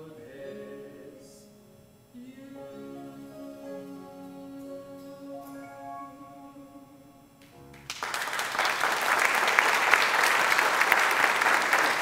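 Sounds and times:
audience applause: 7.9s - 12.0s.

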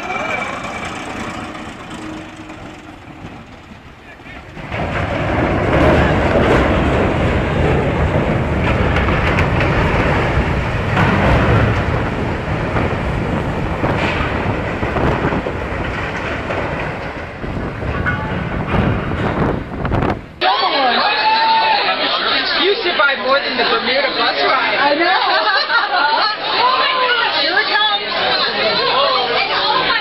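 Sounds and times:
loud rumble and scraping: 0.0s - 20.4s
ship hull grinding aground: 0.0s - 20.4s.

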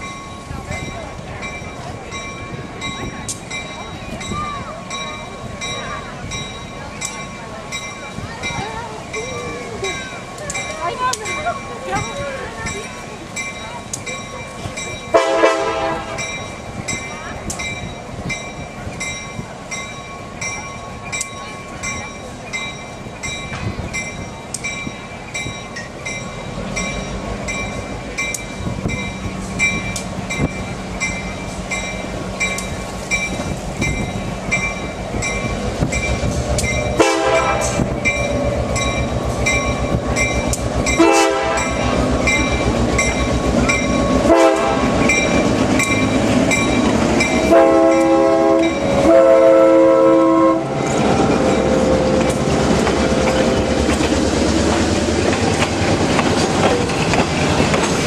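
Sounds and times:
locomotive bell ringing: 0.0s - 58.0s
train wheels clicking over rail joints: 0.0s - 58.0s
train air horn: 15.1s - 16.2s, 37.0s - 37.8s, 41.0s - 41.7s, 44.2s - 45.0s, 47.5s - 51.0s.

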